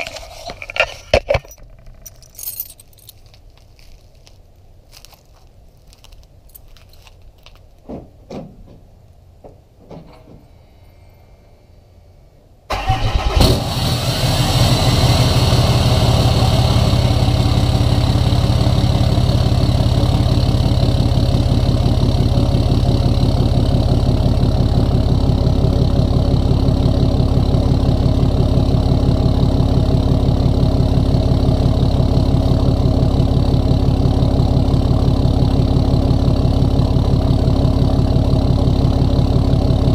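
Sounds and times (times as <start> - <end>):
diesel engine starting and idling: 12.7 - 39.9.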